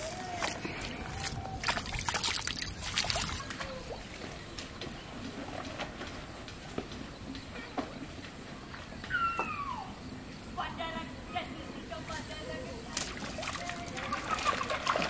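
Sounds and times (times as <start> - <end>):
fish splashing in plastic tub: 0.0 - 4.2, 12.9 - 15.0
water trickling and dripping: 0.0 - 4.4, 12.9 - 15.0.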